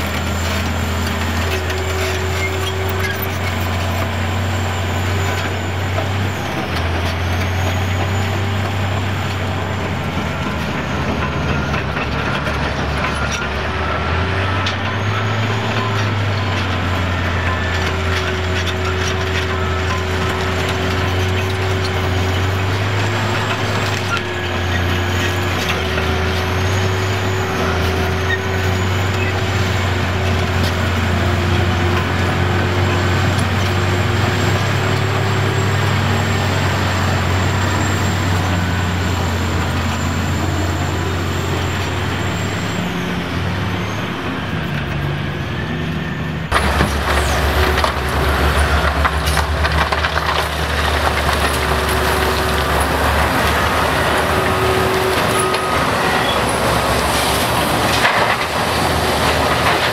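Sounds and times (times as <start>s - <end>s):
heavy diesel engines running: 0.0s - 59.9s
rock clattering and scraping: 46.5s - 55.8s.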